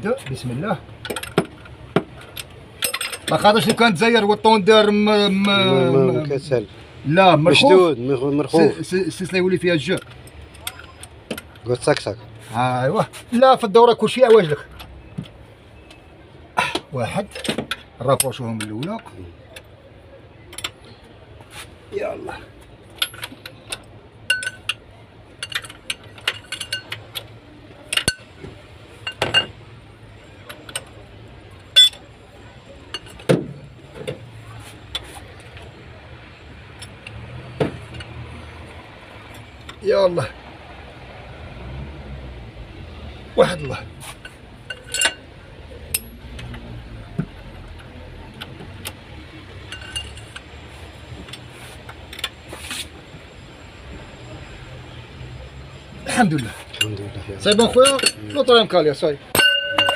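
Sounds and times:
metallic clicks and clinks of spanner: 1.0 - 3.8, 22.9 - 28.3, 30.4 - 31.0, 31.6 - 32.0, 43.6 - 45.3, 49.6 - 52.4, 56.3 - 59.9
metal tools clinking on engine: 1.0 - 5.7, 8.5 - 15.2, 22.8 - 29.6, 30.3 - 35.8, 37.8 - 38.3, 43.4 - 54.4, 55.6 - 59.9.

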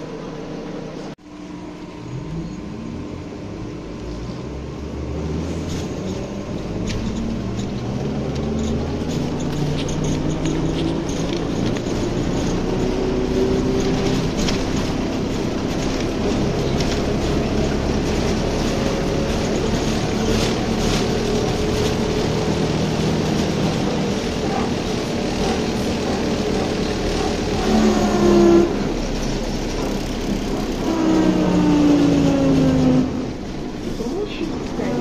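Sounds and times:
bus ride and road noise: 0.0 - 35.0
electric drive whine: 0.6 - 8.0.

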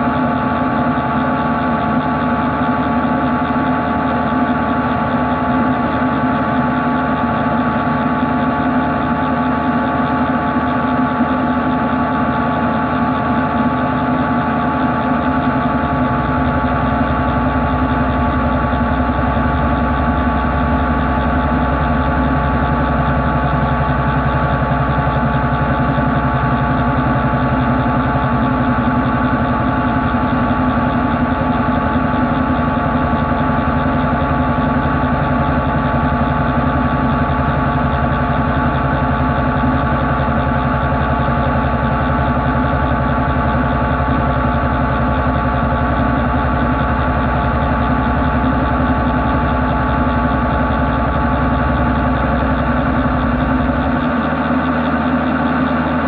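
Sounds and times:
machine hum with held tones: 0.0 - 56.0
deep rumble: 15.5 - 56.0.

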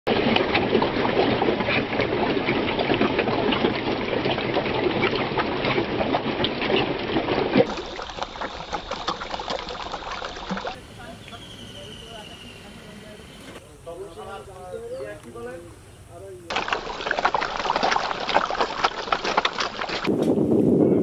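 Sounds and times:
fish splashing at water surface: 0.1 - 10.8, 16.5 - 20.1.

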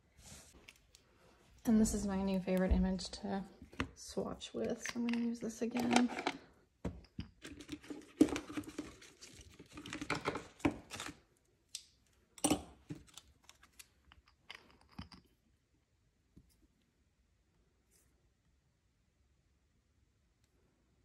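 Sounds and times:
small tools clicking and tapping: 4.6 - 7.7.

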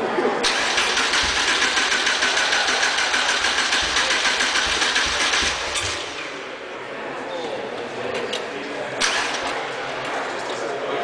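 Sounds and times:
starter motor cranking engine: 0.4 - 6.3.

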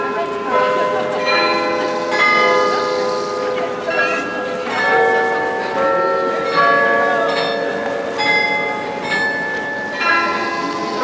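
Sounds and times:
carillon bells playing a melody: 0.0 - 11.0.

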